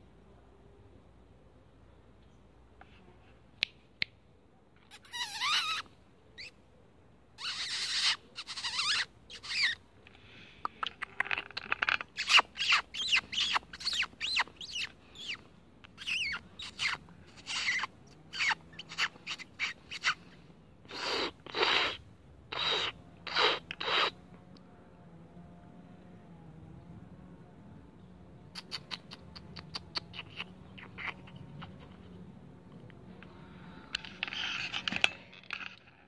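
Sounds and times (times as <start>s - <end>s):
squirrel chattering calls: 4.9s - 5.8s, 7.4s - 9.8s, 10.6s - 20.3s, 20.9s - 24.2s, 28.5s - 32.1s.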